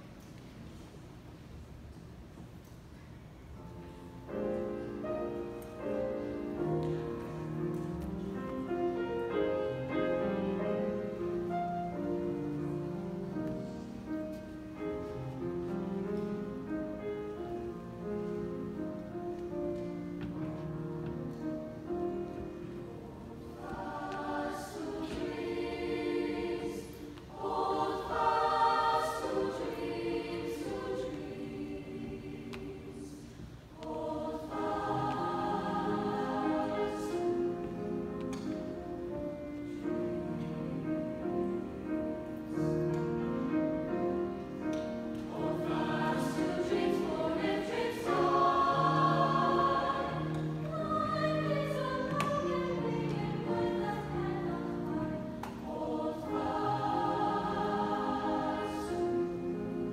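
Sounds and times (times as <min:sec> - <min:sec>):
grand piano accompaniment: 0:00.0 - 0:59.9
mixed choir singing: 0:21.4 - 0:59.9.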